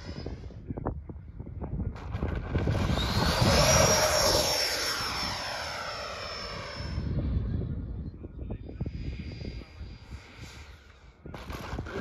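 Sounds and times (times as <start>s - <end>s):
electric ducted fans whining: 2.1s - 11.0s.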